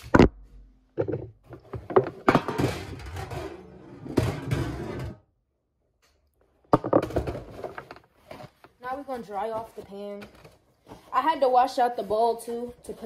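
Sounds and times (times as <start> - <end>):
metal baking pan clattering: 2.2 - 5.2.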